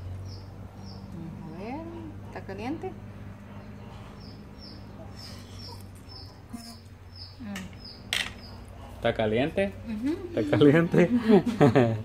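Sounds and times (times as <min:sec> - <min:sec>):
small bird chirping: 0:00.0 - 0:09.0.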